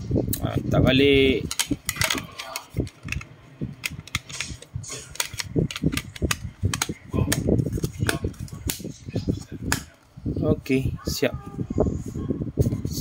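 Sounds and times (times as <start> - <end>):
plastic casing snapping shut: 1.5 - 8.8.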